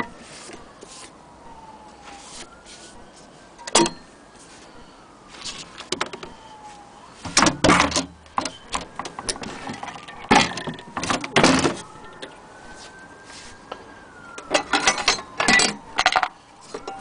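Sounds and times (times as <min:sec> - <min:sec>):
wood and metal knocks and clatter: 0:07.4 - 0:11.8, 0:14.4 - 0:17.0.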